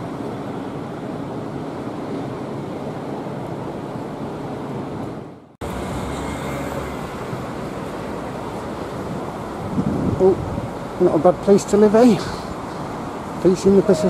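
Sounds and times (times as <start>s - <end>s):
surf washing: 0.0s - 14.0s
wind buffeting microphone: 7.0s - 14.0s.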